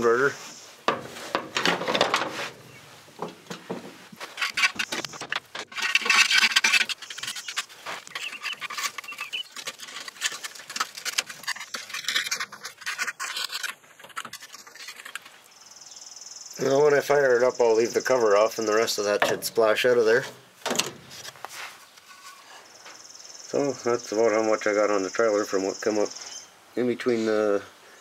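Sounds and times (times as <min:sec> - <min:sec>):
mud being scraped off metal: 0:00.0 - 0:15.4, 0:18.0 - 0:22.7.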